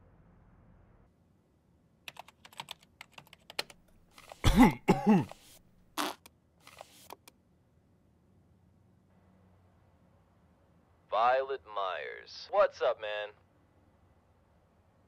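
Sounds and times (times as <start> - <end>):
computer keyboard typing: 2.1 - 4.4
man's short vocal sound: 4.4 - 5.4.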